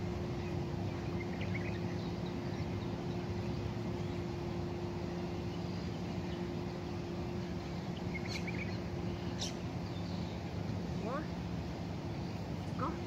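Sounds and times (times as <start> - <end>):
low background hum: 0.0 - 13.0
bird chirps: 5.5 - 10.5.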